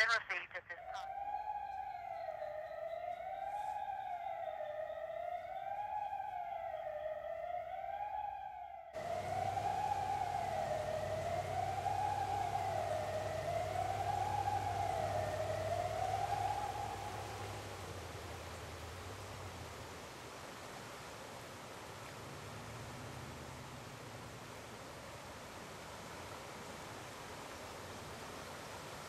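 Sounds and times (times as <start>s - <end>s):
wailing warning siren: 0.7s - 20.0s
river water rushing: 9.0s - 29.0s.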